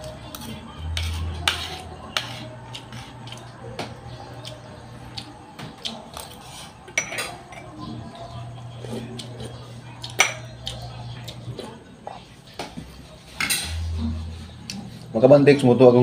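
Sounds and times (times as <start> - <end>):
metal spoon scraping ceramic plate: 0.3 - 3.4, 6.2 - 7.7, 13.4 - 14.3.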